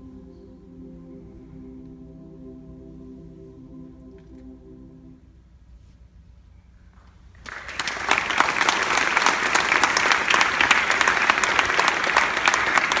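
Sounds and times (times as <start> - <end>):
audience applause: 7.4 - 13.0.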